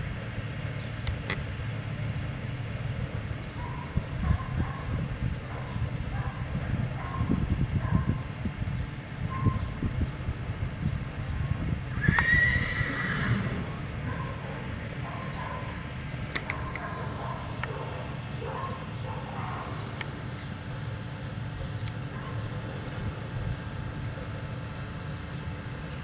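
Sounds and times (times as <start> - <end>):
steady low rumble: 0.0 - 24.7
horse whinnying: 12.0 - 13.7.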